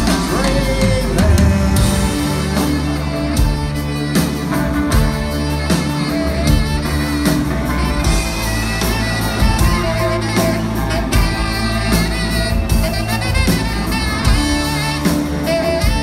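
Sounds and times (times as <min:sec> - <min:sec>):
bass guitar: 0:00.0 - 0:16.0
drum kit: 0:00.0 - 0:16.0
saxophone: 0:00.0 - 0:16.0.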